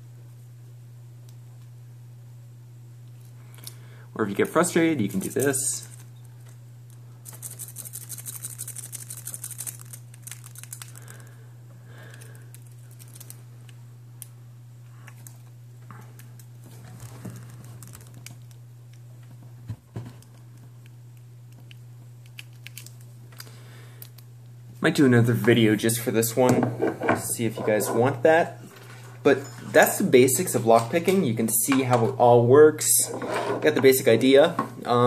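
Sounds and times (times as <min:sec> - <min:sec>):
steady low hum: 0:00.0 - 0:35.0
lock pick scratching and rattling: 0:07.2 - 0:10.9.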